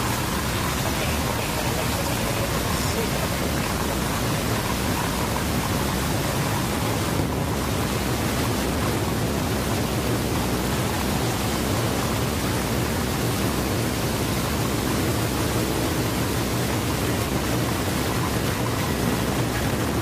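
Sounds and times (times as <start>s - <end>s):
wind rushing on microphone: 3.2s - 20.0s.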